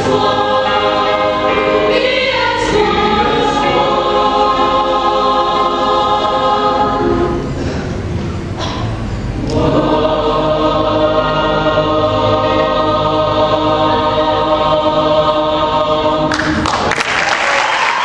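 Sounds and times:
mixed choir singing held chord: 0.0s - 8.8s, 9.4s - 16.8s
audience applause: 16.3s - 18.0s.

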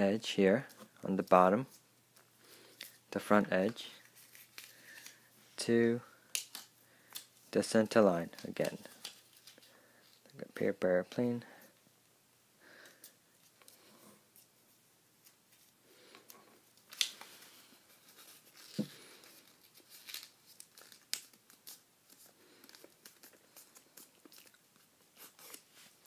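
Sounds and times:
paper rustling and crinkling: 3.6s - 5.6s, 8.2s - 10.3s, 15.2s - 26.0s.

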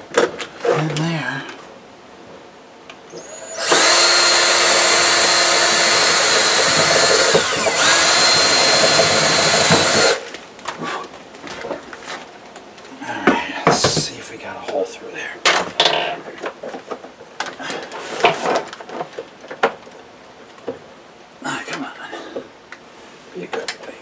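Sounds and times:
cordless drill boring through wood: 3.2s - 10.2s.

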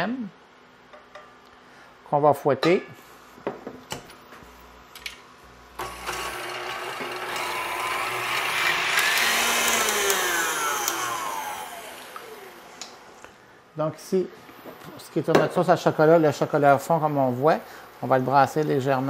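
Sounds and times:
stand mixer motor whining: 5.8s - 13.1s.

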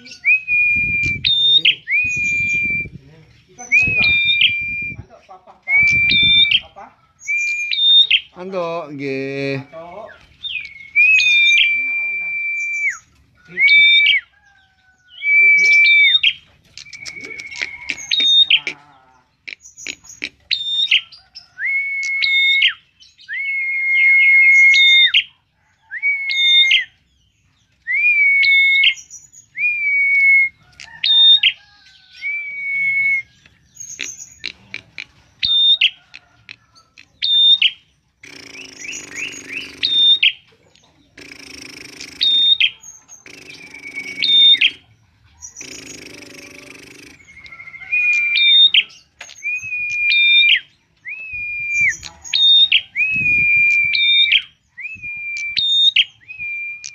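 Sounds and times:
bird singing whistled phrase: 0.0s - 3.0s, 3.6s - 5.1s, 5.7s - 6.6s, 9.5s - 14.3s, 15.1s - 18.8s, 19.8s - 27.0s, 27.8s - 30.6s, 32.1s - 33.4s, 41.2s - 44.8s, 45.6s - 56.9s
rough buzzy sound: 41.1s - 42.4s.

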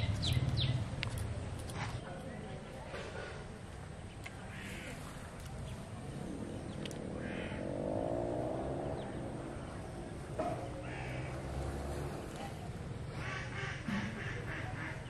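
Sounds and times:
low drawn-out animal call: 4.5s - 12.4s
short harsh animal calls: 7.2s - 7.7s.

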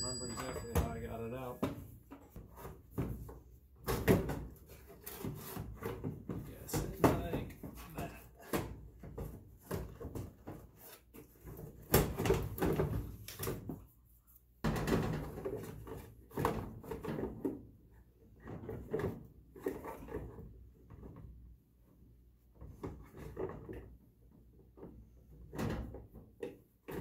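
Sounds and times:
plastic knocking and scraping on metal: 1.6s - 13.8s, 14.6s - 21.4s.

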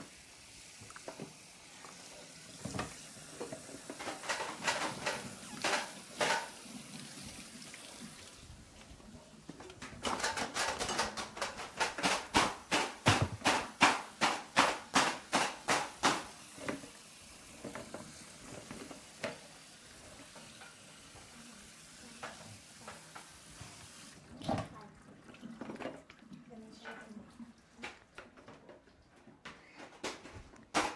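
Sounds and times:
noodles rattling in a colander: 3.8s - 6.6s, 9.8s - 12.4s.

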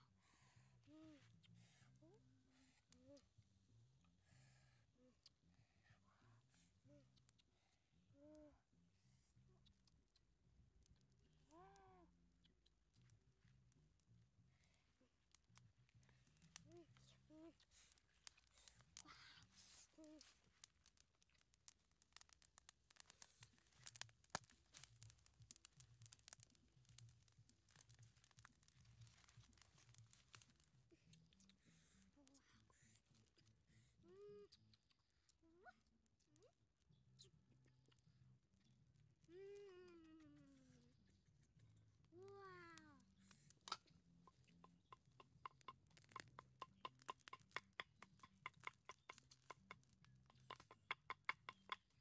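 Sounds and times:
wood fire crackling: 9.4s - 33.7s, 39.1s - 52.0s
sharp pops and clicks: 9.6s - 32.4s, 43.0s - 52.0s.

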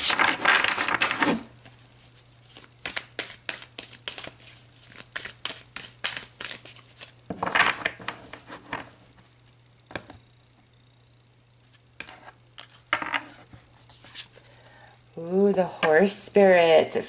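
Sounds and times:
cards rustling: 0.0s - 7.2s.

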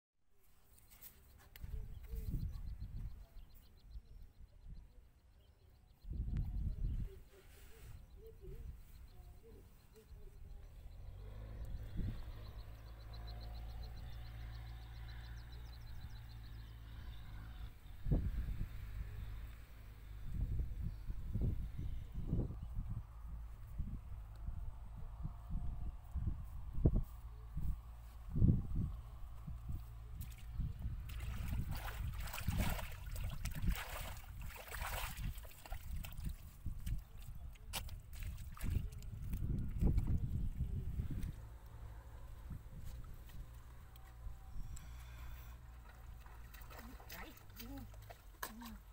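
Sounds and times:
bare feet squelching in mud: 30.2s - 40.2s, 45.8s - 48.9s.

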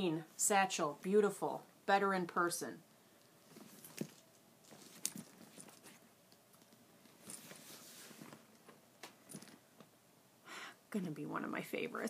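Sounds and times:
leather bag rustling: 3.4s - 6.1s, 7.0s - 8.4s.

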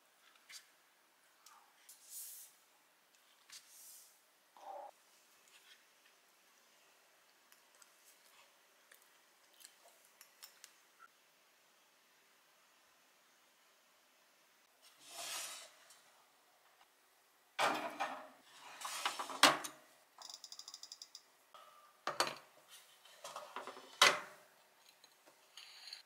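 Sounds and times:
dishes clattering on a counter: 21.6s - 22.5s.

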